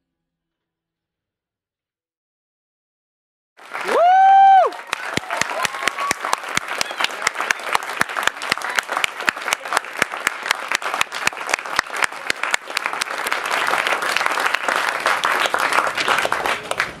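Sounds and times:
audience applauding: 3.6 - 17.0.

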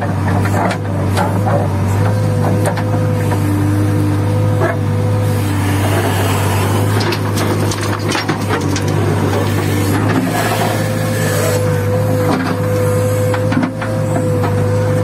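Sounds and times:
diesel engine running under load: 0.0 - 15.0.

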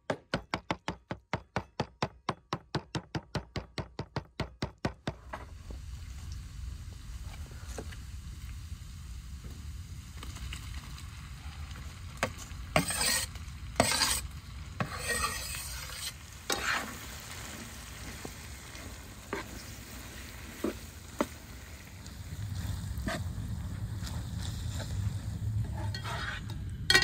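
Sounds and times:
sizzling in a wok: 5.1 - 27.0
food scraped off wooden board: 12.2 - 17.0.

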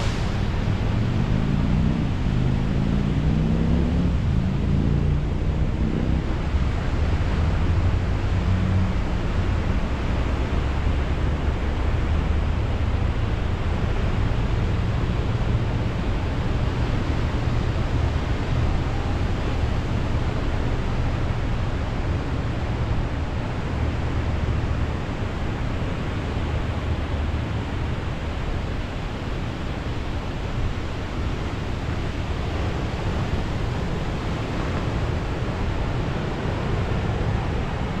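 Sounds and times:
wind rumbling on microphone: 0.0 - 38.0
ocean surf breaking: 24.4 - 38.0.

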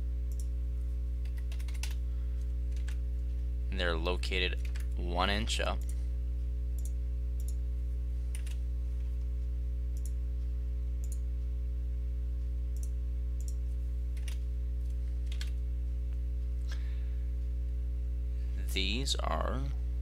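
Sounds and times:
steady electrical hum: 0.0 - 20.0
computer mouse clicks: 0.3 - 0.5, 6.8 - 7.6, 10.0 - 10.2, 11.0 - 11.2, 12.8 - 13.6
keystrokes: 0.3 - 0.5, 1.2 - 2.0, 2.7 - 3.0, 4.6 - 4.9, 8.3 - 8.6, 12.8 - 14.4, 15.2 - 15.6.

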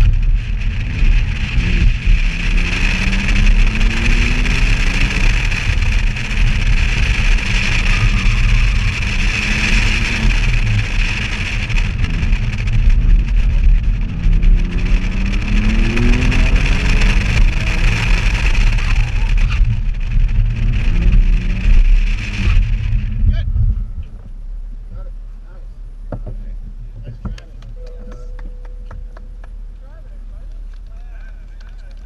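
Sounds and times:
car engine revving hard: 0.0 - 23.7
wind buffeting on microphone: 0.0 - 25.1.

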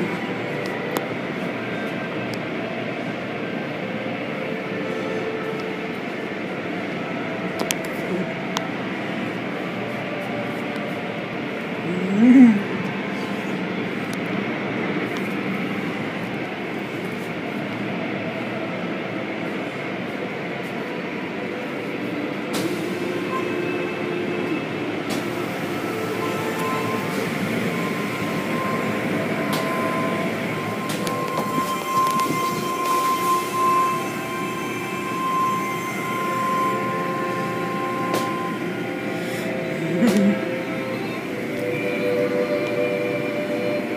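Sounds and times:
high whine: 0.0 - 43.9.

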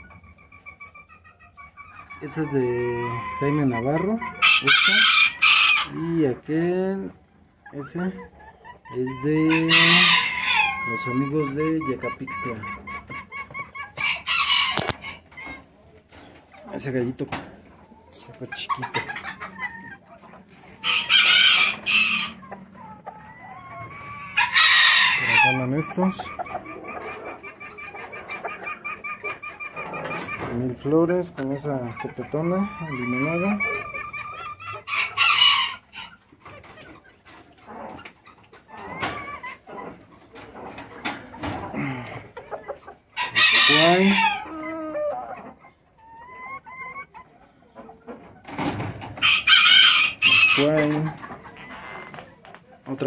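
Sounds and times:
chicken calls: 0.0 - 53.0
rooster crowing: 49.2 - 50.6.

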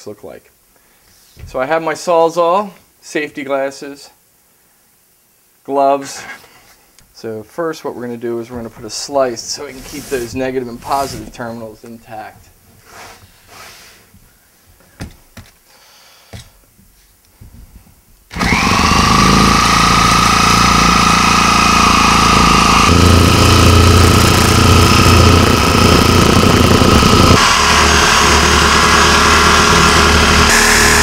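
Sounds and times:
reciprocating saw cutting plastic: 9.3 - 11.4, 18.3 - 31.0
handling knocks: 14.2 - 15.6.

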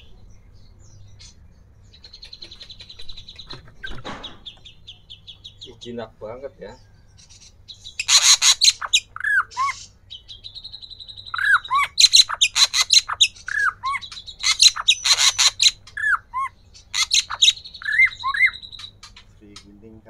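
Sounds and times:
bird harsh chattering: 0.0 - 20.0
bird whistles: 7.2 - 19.3.

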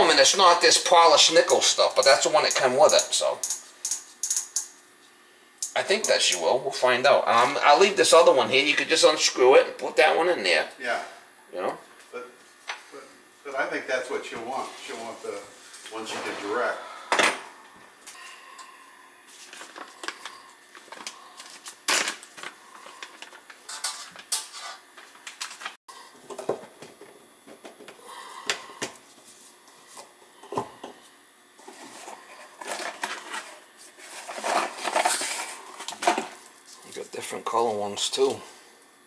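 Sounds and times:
small parts clicking and knocking: 2.0 - 4.8.

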